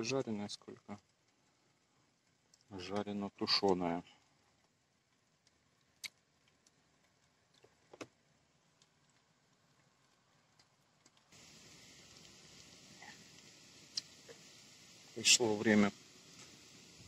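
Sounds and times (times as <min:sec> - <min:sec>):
faint steady hiss: 0:00.0 - 0:17.0
faint ticks: 0:00.7 - 0:11.4.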